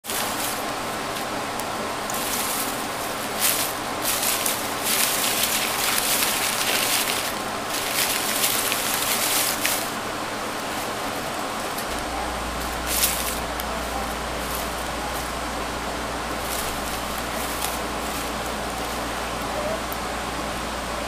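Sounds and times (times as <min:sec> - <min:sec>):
crumpled paper rustling: 0:00.0 - 0:01.3, 0:02.1 - 0:15.4, 0:16.3 - 0:19.2
steady background hiss: 0:00.0 - 0:21.0.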